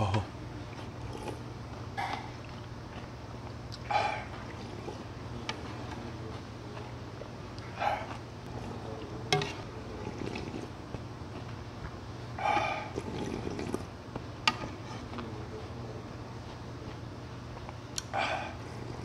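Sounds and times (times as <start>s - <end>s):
slurping from a ladle: 9.4s - 10.7s, 12.9s - 13.9s.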